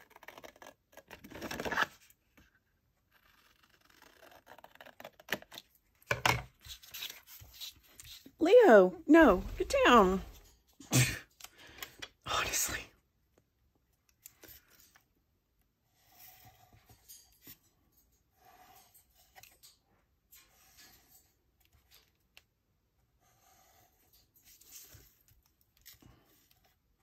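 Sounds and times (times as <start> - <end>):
soft scratchy strokes on paper: 15.8 - 17.1, 18.3 - 19.4, 23.0 - 27.0.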